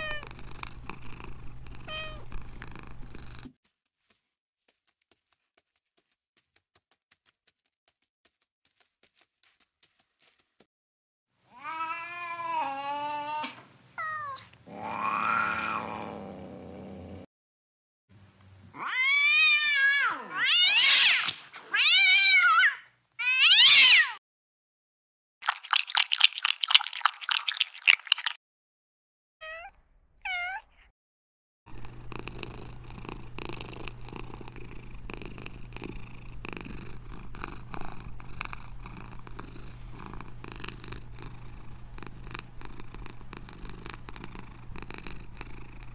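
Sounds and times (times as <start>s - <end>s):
cat meowing: 0.0s - 0.3s, 1.9s - 2.3s, 11.5s - 15.9s, 18.7s - 24.2s, 29.4s - 30.8s
cat purring: 0.0s - 3.6s, 31.7s - 45.9s
cat chirps: 29.4s - 30.9s.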